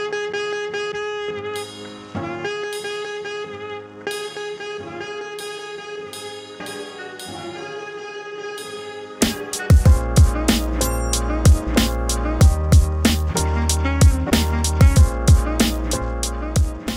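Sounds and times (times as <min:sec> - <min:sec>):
jazzy instrumental music with horns: 0:00.0 - 0:16.9
bass-heavy music passage: 0:08.6 - 0:16.9.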